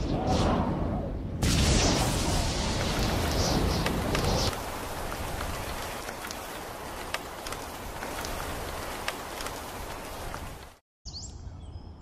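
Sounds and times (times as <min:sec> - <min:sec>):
rain on sandy ground: 0:01.6 - 0:10.8
raindrops ticking: 0:02.8 - 0:10.8.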